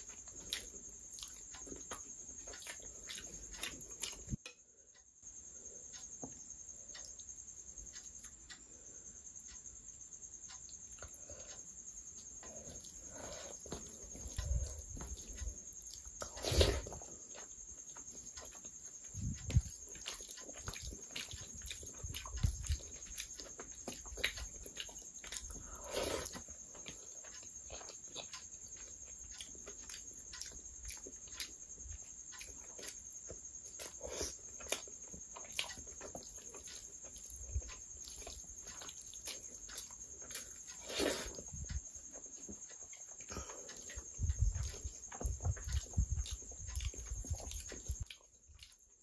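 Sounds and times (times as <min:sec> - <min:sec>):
wet chewing and mouth smacks: 0:00.0 - 0:04.4, 0:12.2 - 0:49.0
fingers squishing rice: 0:12.0 - 0:41.8.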